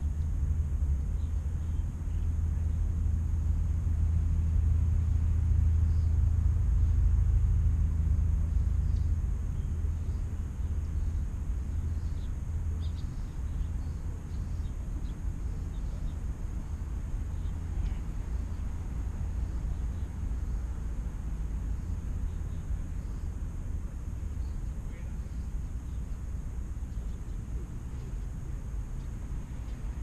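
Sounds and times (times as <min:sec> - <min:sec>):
distant vehicle engine rumble: 0:00.0 - 0:30.0
faint bird chirps: 0:08.5 - 0:16.2.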